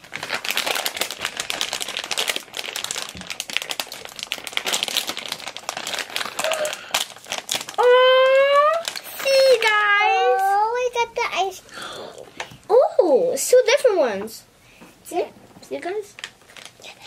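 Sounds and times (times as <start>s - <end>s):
plastic packets crinkling: 0.0s - 10.9s, 16.0s - 17.0s.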